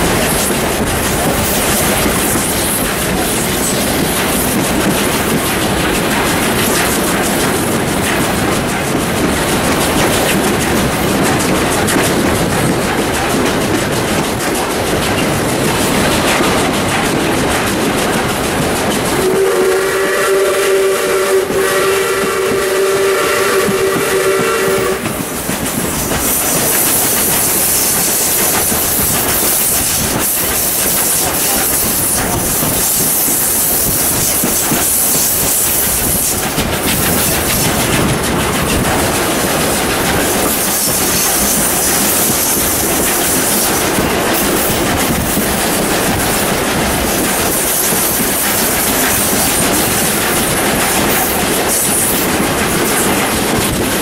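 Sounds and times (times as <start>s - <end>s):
train rushing noise: 0.0s - 54.0s
train wheels clattering: 0.0s - 54.0s
steam whistle: 19.2s - 25.2s.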